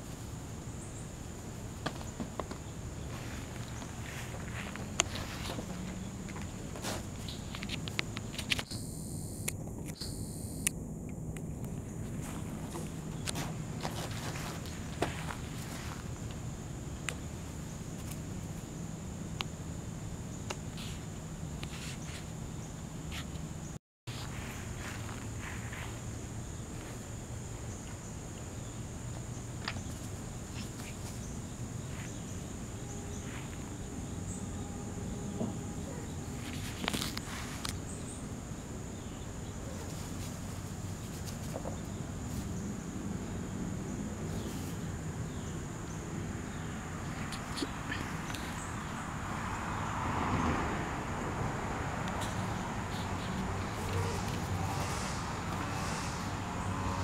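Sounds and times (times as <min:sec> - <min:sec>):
low steady hum: 0:00.0 - 0:21.6
crickets droning: 0:00.0 - 0:57.0
high-pitched insect drone: 0:08.7 - 0:10.7, 0:31.4 - 0:39.2, 0:52.4 - 0:57.0.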